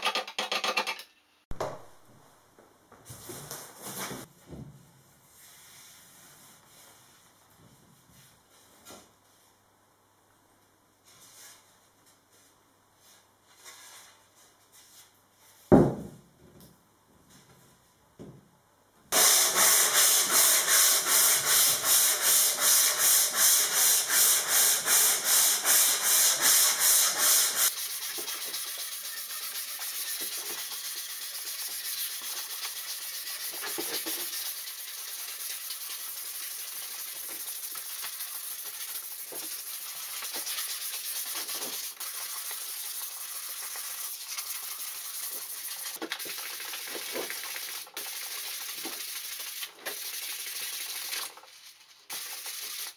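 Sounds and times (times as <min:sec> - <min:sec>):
sandpaper rasping on wood: 0:19.2 - 0:46.0.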